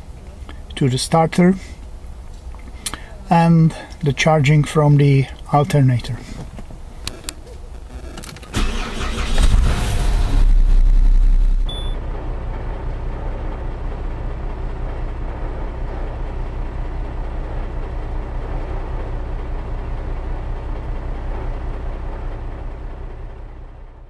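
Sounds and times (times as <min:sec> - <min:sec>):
starter cranking: 0:08.2 - 0:09.9
diesel engine idling: 0:08.5 - 0:24.0.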